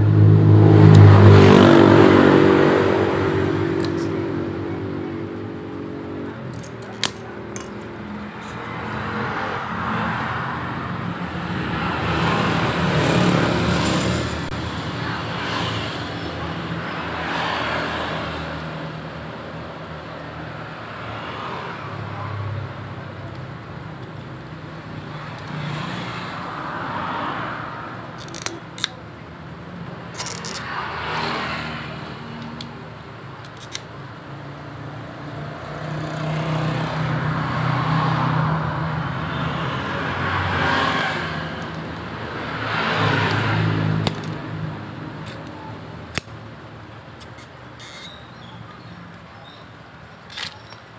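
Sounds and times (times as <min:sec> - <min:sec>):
road traffic passing: 0:00.0 - 0:50.9
screwdriver clicking plastic parts: 0:28.2 - 0:28.9, 0:30.2 - 0:30.6, 0:33.4 - 0:33.9, 0:44.0 - 0:44.4.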